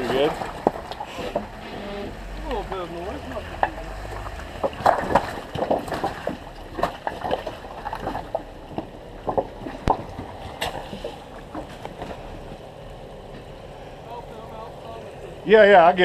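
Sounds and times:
low engine rumble: 0:00.0 - 0:16.0.

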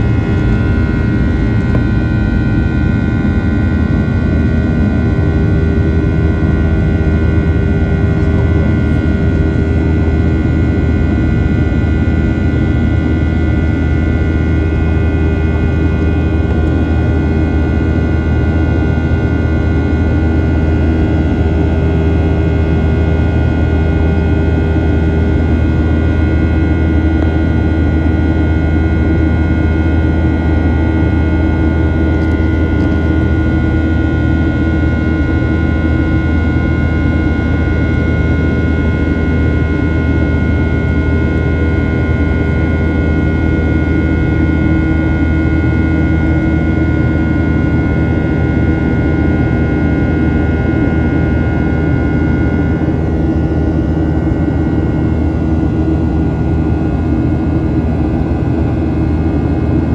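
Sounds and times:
jet engine low rumble: 0:00.0 - 0:59.9
whining fan tones: 0:00.0 - 0:59.9.

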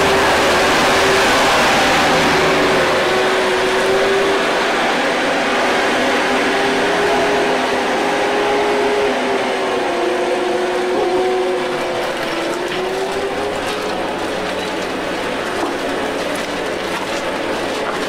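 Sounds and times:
rushing noise: 0:00.0 - 0:12.2
motor droning: 0:00.0 - 0:14.4.

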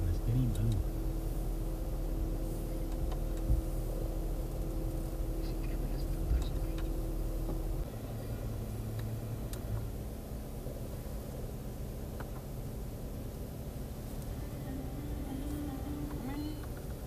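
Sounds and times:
low car cabin hum: 0:00.0 - 0:17.0.

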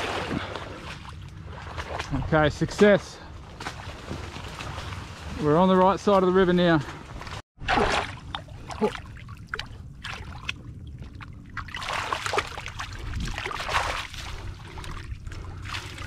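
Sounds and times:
water sloshing and splashing: 0:00.0 - 0:16.0
steady low rumble: 0:08.1 - 0:16.0.

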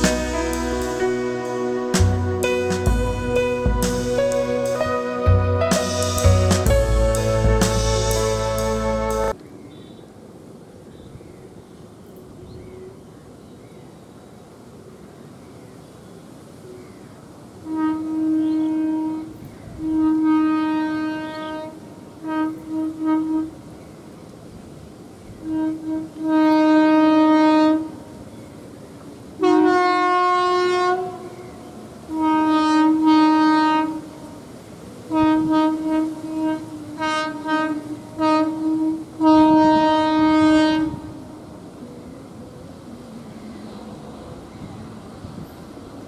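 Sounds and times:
train horn blasts: 0:00.0 - 0:09.4, 0:17.6 - 0:23.8, 0:25.4 - 0:28.3, 0:29.4 - 0:41.8
low rumble of approaching train: 0:00.0 - 0:46.0.

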